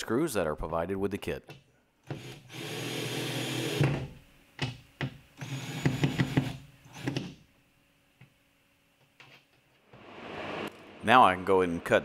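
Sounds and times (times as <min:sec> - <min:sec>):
cordless drill driving screws: 0:02.1 - 0:03.9, 0:05.4 - 0:07.2
drill clicks: 0:05.4 - 0:07.3.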